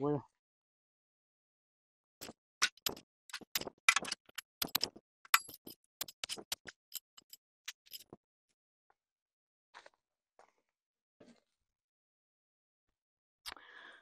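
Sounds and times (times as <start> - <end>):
metal spade striking dry soil: 2.6 - 8.1.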